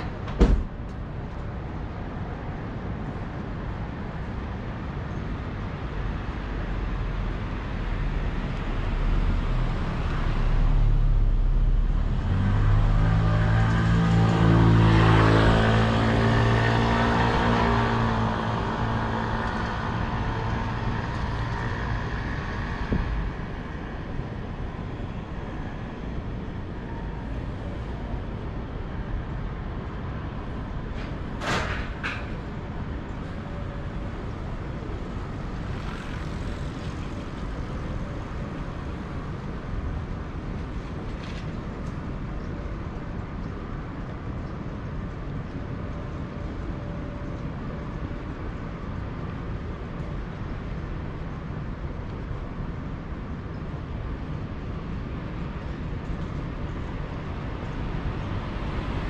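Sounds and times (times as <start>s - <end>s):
street traffic noise: 0.0s - 59.0s
vehicle engine passing: 8.8s - 24.0s.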